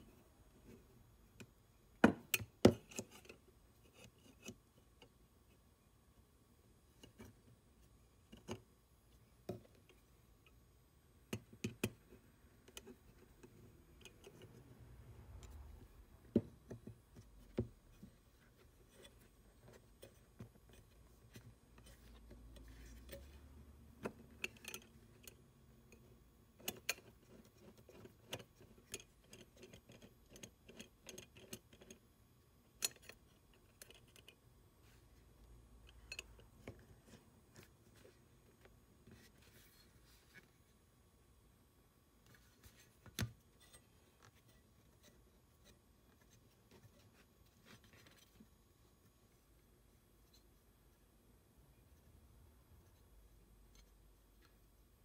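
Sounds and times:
small metallic clicks and taps: 0:06.9 - 0:08.7, 0:11.3 - 0:14.7, 0:16.3 - 0:32.1, 0:32.7 - 0:35.0, 0:35.8 - 0:38.8.

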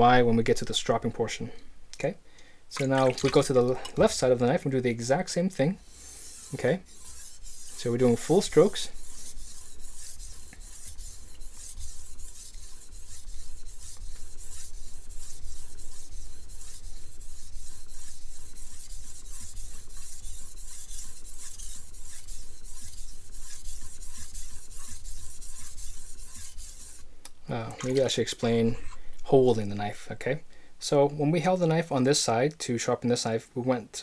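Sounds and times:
knife scraping on whetstone: 0:05.8 - 0:27.0.

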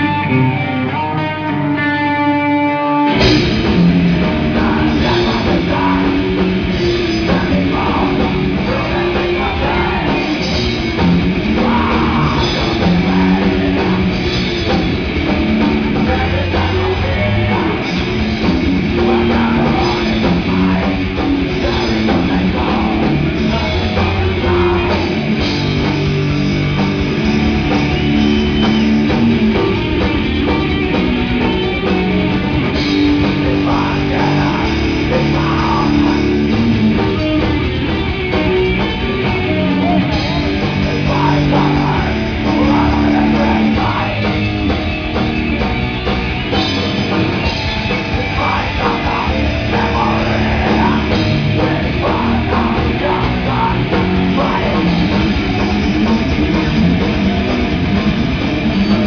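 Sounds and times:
guitar melodic line: 0:00.0 - 0:59.0
heavy metal band playing: 0:00.0 - 0:59.0.

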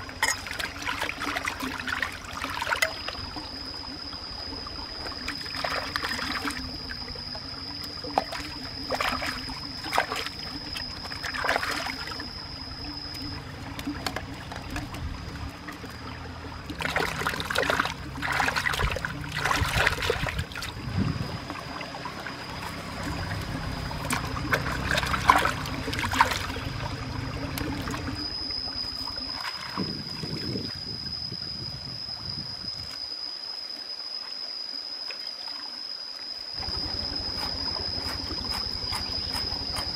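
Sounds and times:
stream running over rocks: 0:00.0 - 0:30.7.

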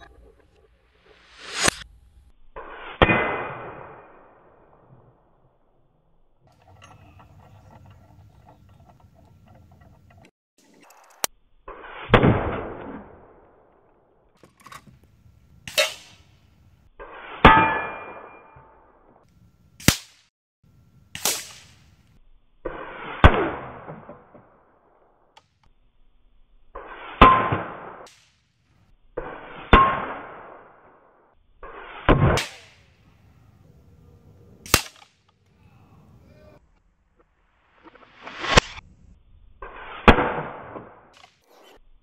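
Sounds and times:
pellets hitting steel targets: 0:15.7 - 0:16.3, 0:21.2 - 0:21.9, 0:31.8 - 0:33.0, 0:34.7 - 0:35.2.

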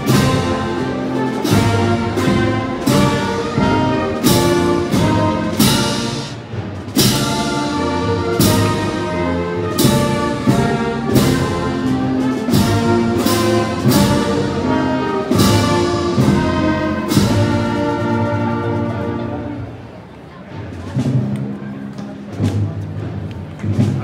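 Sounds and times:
heavy drum strikes: 0:00.0 - 0:18.5
brass band playing a march: 0:00.0 - 0:20.0.

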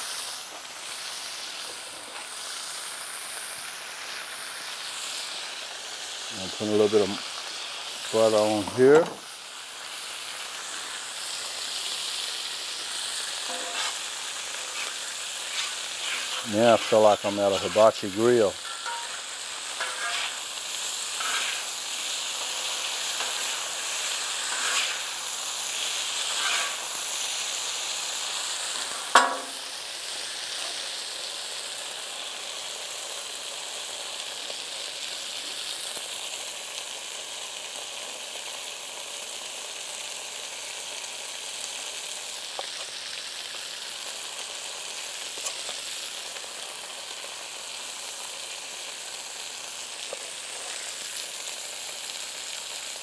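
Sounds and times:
potatoes sizzling on a griddle: 0:00.0 - 0:53.0
metal spatula scraping: 0:13.5 - 0:20.4, 0:21.1 - 0:21.7, 0:22.6 - 0:25.1, 0:26.2 - 0:26.9
sharp knock: 0:29.2 - 0:29.6.

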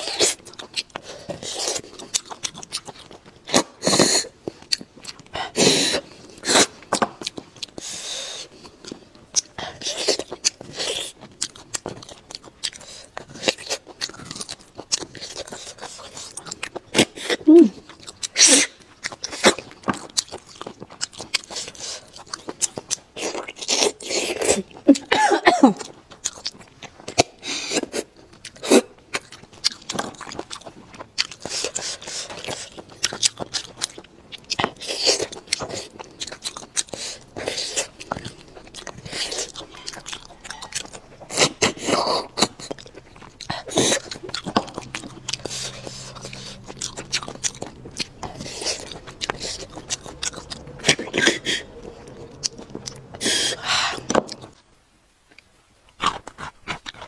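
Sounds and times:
wet sucking and chewing: 0:00.0 - 0:25.2, 0:25.8 - 0:54.6, 0:55.3 - 0:57.0
wet mouth clicks: 0:34.6 - 0:54.6.

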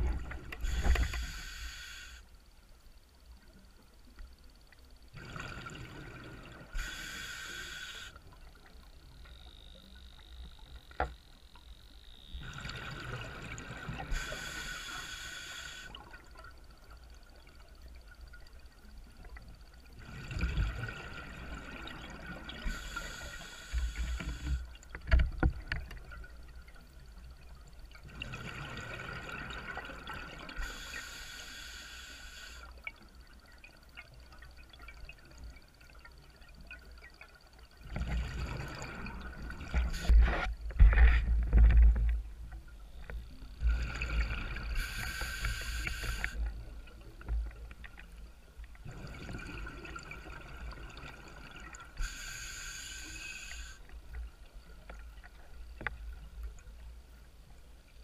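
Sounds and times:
underwater bubbling: 0:00.0 - 0:02.2, 0:03.0 - 0:58.0
diver breathing through regulator: 0:00.6 - 0:02.2, 0:06.8 - 0:08.2, 0:14.1 - 0:16.0, 0:43.6 - 0:46.4, 0:52.0 - 0:53.8.

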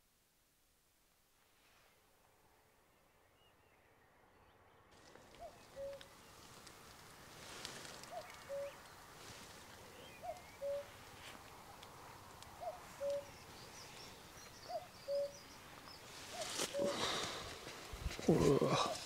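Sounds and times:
small birds chirping: 0:03.2 - 0:19.0
cuckoo calling: 0:05.1 - 0:06.3, 0:08.0 - 0:09.0, 0:09.8 - 0:11.0, 0:12.4 - 0:17.5.

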